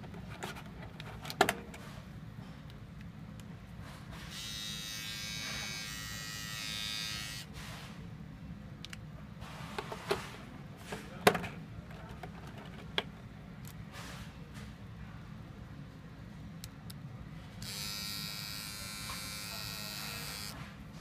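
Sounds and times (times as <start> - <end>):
electric trimmer buzzing: 4.3 - 7.5, 17.6 - 20.6.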